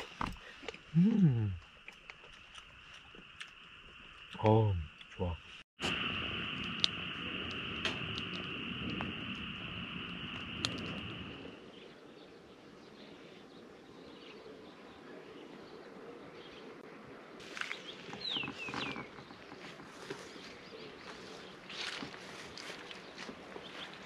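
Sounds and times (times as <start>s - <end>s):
crickets trilling: 0.0s - 12.0s.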